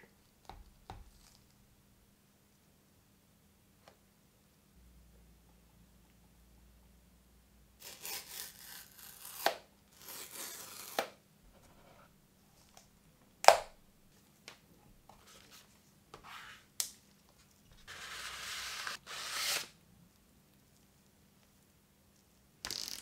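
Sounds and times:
cardboard sleeve sliding open: 17.8 - 19.7
cardboard seal tearing: 18.1 - 19.8.

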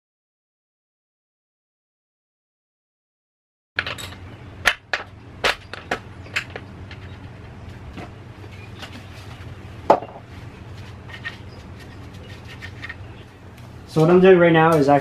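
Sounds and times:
engine parts clicking and clunking: 3.8 - 10.3
low steady hum: 3.8 - 15.0.

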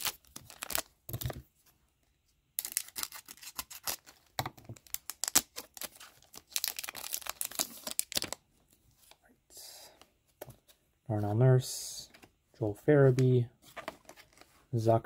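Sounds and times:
wrapper crinkling: 0.0 - 1.4, 4.8 - 8.4.

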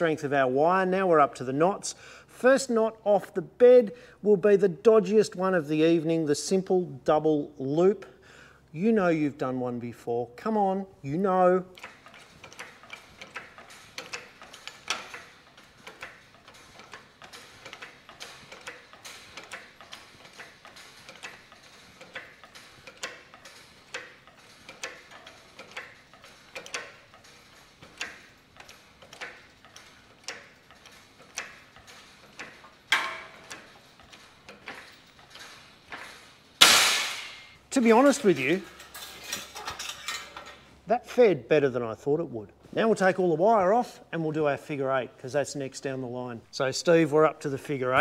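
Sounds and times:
hydraulic jack clicking: 11.7 - 39.8.

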